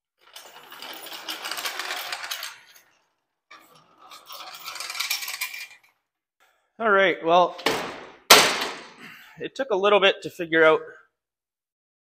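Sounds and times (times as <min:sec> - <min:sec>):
engine stand casters rattling: 0:00.2 - 0:05.9.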